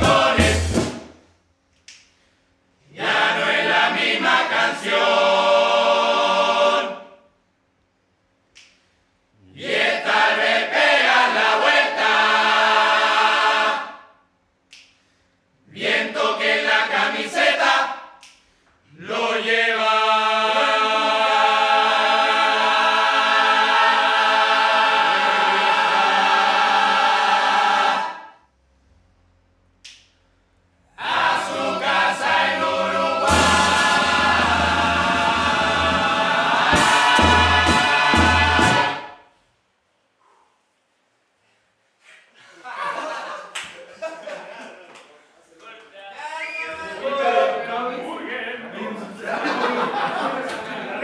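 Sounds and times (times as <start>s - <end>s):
men's chorus singing a cappella: 0.0s - 0.8s, 2.9s - 7.2s, 9.6s - 14.1s, 15.7s - 18.1s, 18.9s - 28.4s, 30.9s - 39.2s.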